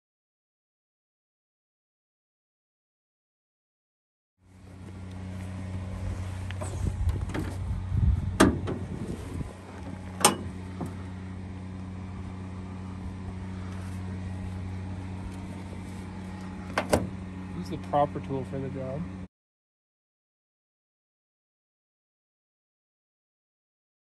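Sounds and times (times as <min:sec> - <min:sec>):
steady low hum: 0:04.4 - 0:19.3
rumbling handling noise: 0:04.5 - 0:18.3.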